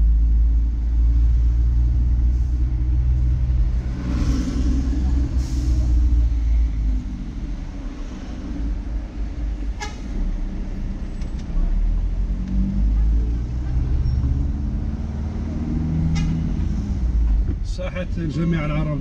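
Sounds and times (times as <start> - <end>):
vehicle engine and road noise: 0.0 - 19.0.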